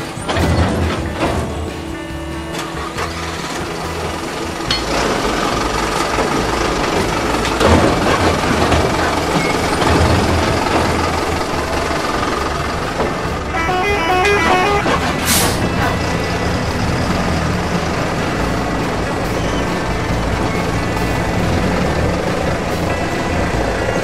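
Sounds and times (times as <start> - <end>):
truck engine rumbling: 0.0 - 24.0
truck horn stepped notes: 1.0 - 24.0
air-brake hiss: 14.7 - 16.4.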